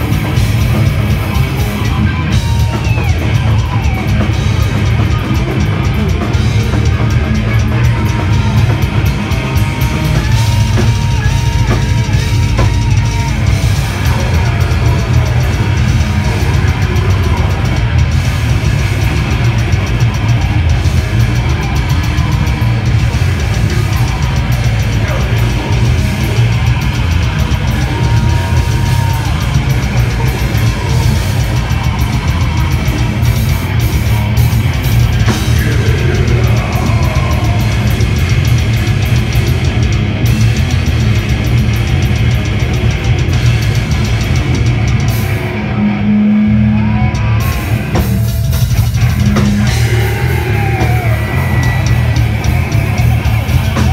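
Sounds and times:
distorted electric guitars: 0.0s - 53.9s
drum kit: 0.0s - 53.9s.

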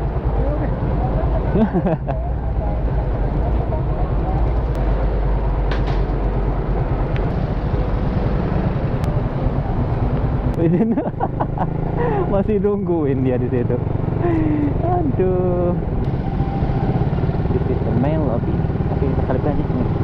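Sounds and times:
motorcycle moving off: 0.0s - 20.0s.

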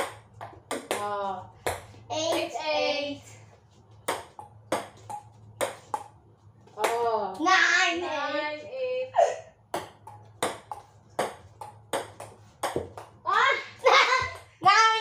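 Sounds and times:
ping pong ball clicking: 0.0s - 2.5s, 9.7s - 13.1s.

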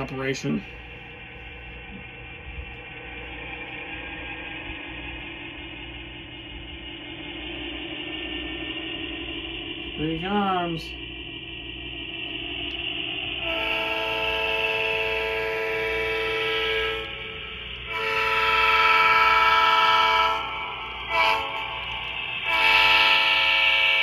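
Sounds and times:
diesel horn blasts from small speaker: 13.4s - 24.0s.

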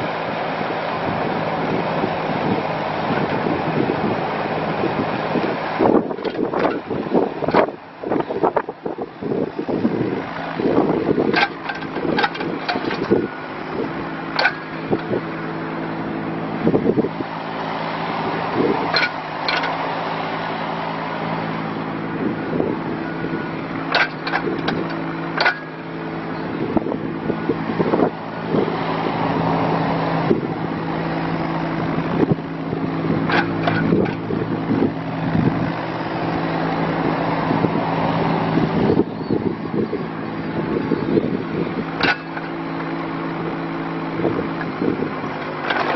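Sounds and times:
excavator diesel engine running: 0.0s - 45.9s
sharp metallic clanks: 11.3s - 13.4s, 14.3s - 15.2s, 18.9s - 19.8s, 23.9s - 25.9s, 33.2s - 34.3s, 42.0s - 42.9s.

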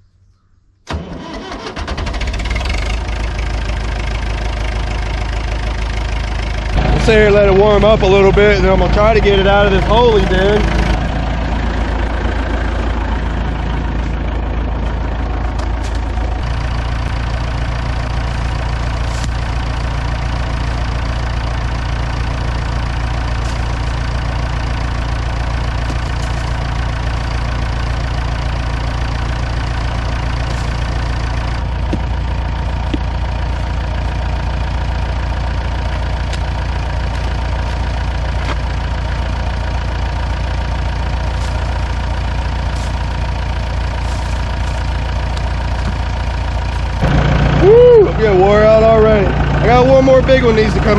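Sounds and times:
diesel tractor engine idling: 0.9s - 50.9s.

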